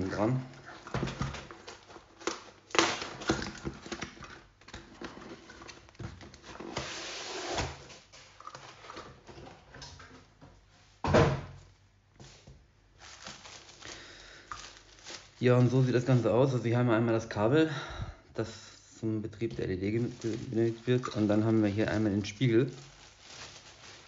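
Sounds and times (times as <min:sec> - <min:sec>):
cardboard scraping and rustling: 0:04.8 - 0:09.7, 0:13.0 - 0:13.9, 0:19.5 - 0:24.0.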